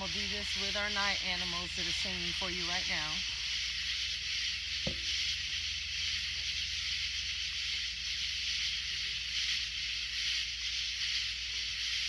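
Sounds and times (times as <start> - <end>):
steady low hum: 0.0 - 9.7
night insects singing: 0.0 - 12.0.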